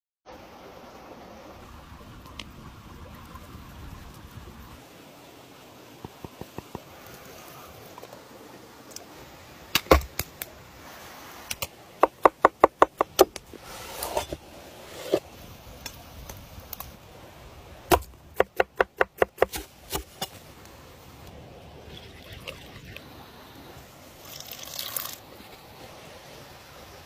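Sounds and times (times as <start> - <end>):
knife chopping on wooden board: 17.9 - 20.0.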